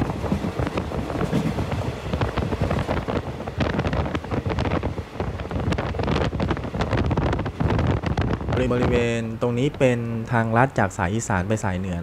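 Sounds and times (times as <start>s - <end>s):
wind buffeting microphone: 0.0s - 10.8s
train rumble: 0.0s - 12.0s.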